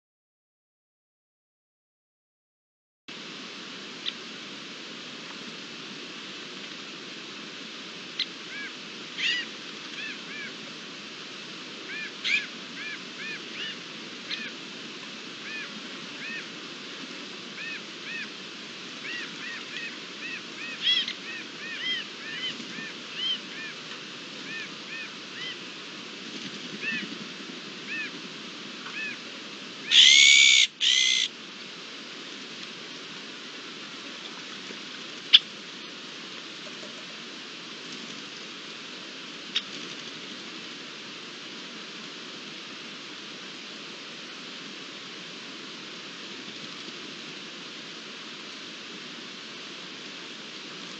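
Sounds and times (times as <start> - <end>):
steady hiss: 3.1 - 50.9
magpies calling: 8.2 - 10.5, 11.9 - 14.5, 19.0 - 23.7, 29.9 - 31.3.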